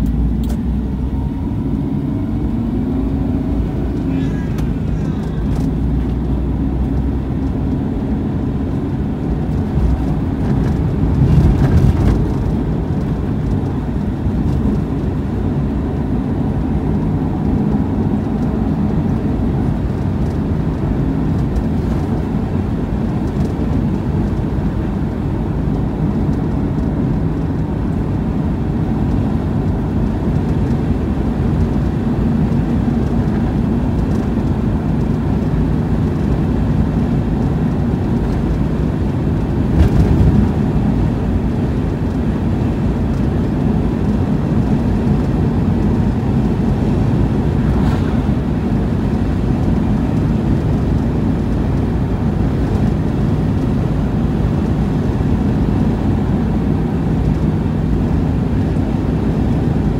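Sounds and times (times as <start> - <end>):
car engine and tyre rumble: 0.0 - 59.9.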